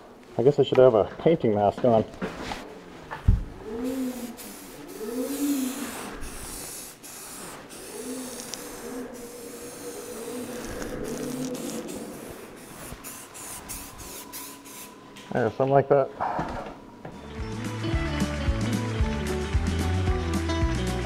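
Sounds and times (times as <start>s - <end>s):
aerosol spray can hissing: 3.8s - 15.0s.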